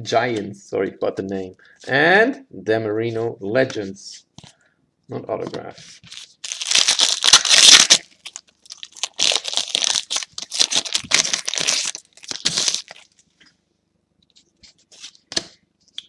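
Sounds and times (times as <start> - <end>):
foil wrapper tearing and crumpling: 6.1 - 13.2.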